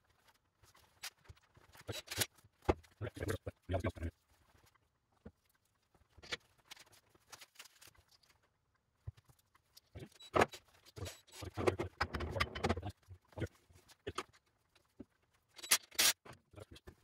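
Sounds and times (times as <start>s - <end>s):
tools and engine parts clattering: 10.4s - 12.9s.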